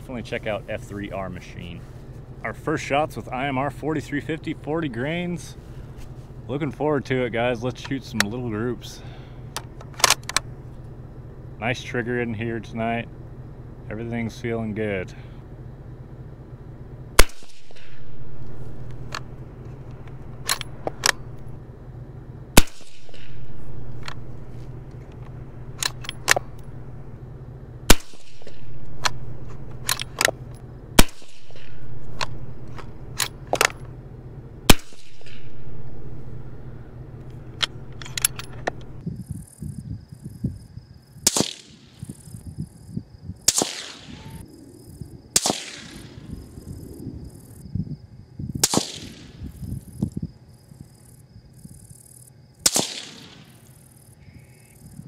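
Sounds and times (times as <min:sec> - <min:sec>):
rifle bolt clicks: 0:09.6 - 0:10.4, 0:20.0 - 0:21.2, 0:25.2 - 0:26.6
rifle shots cracking from afar: 0:17.2 - 0:19.4, 0:22.6 - 0:27.0, 0:27.8 - 0:33.8, 0:34.6 - 0:36.8, 0:41.2 - 0:42.1, 0:43.5 - 0:44.4, 0:45.3 - 0:46.4, 0:48.6 - 0:49.4, 0:52.6 - 0:53.8
suppressed rifle shots: 0:17.2 - 0:21.5, 0:22.6 - 0:27.0, 0:27.8 - 0:34.0, 0:34.6 - 0:36.8, 0:41.2 - 0:42.1, 0:43.5 - 0:44.4, 0:45.3 - 0:46.4, 0:48.6 - 0:49.5, 0:52.6 - 0:53.8.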